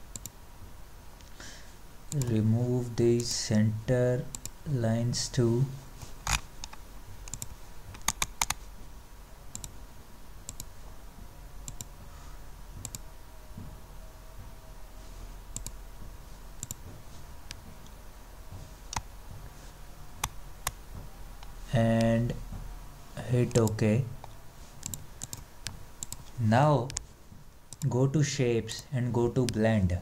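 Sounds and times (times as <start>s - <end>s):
steady low hum: 0.0s - 30.0s
computer mouse clicking: 0.1s - 0.4s, 4.3s - 4.6s, 6.2s - 8.6s, 9.5s - 9.8s, 10.4s - 10.7s, 11.7s - 11.9s, 12.8s - 13.0s, 15.5s - 15.8s, 16.6s - 16.9s, 18.9s - 19.1s, 23.5s - 27.1s.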